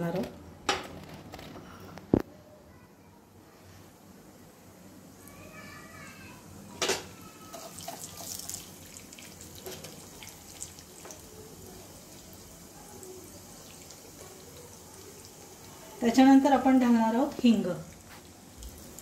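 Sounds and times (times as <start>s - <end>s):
seeds sizzling in hot oil: 7.4s - 19.0s.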